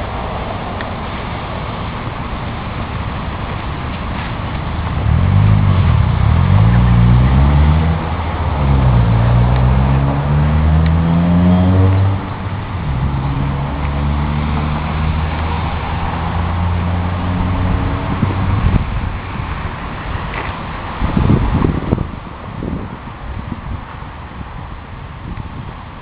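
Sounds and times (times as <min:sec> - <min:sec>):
engine accelerating through gears: 0:04.2 - 0:18.9.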